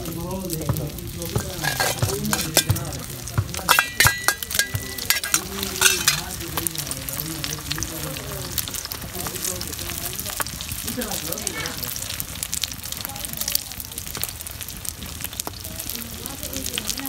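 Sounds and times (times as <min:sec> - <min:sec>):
eggs sizzling in hot oil: 0:00.0 - 0:17.0
metallic clinks against pan: 0:01.4 - 0:06.3.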